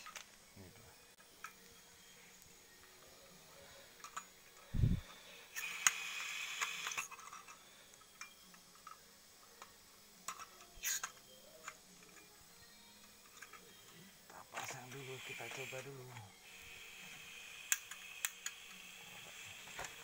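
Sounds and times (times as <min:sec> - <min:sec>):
gas hissing: 0:03.4 - 0:08.3, 0:13.9 - 0:20.0.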